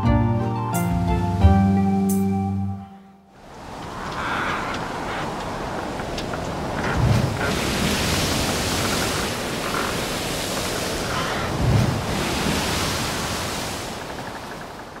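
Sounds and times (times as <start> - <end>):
wind rushing: 3.4 - 14.2
sea water rushing: 3.4 - 15.0
wind buffeting microphone: 3.4 - 15.0.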